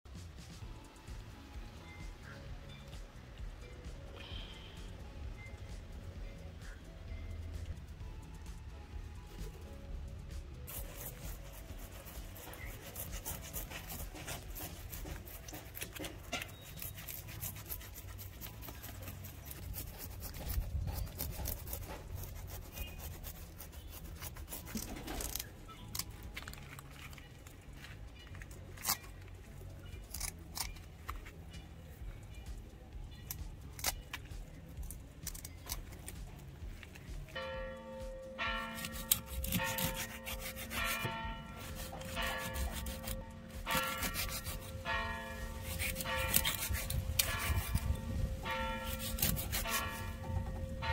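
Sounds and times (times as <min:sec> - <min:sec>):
knife scraping fish scales: 0:10.7 - 0:27.2, 0:30.0 - 0:31.3, 0:35.2 - 0:36.2, 0:38.6 - 0:50.4
scissors cutting fish: 0:10.7 - 0:27.2, 0:28.4 - 0:31.4, 0:33.2 - 0:36.5, 0:38.6 - 0:44.8, 0:45.4 - 0:48.0, 0:48.6 - 0:50.5.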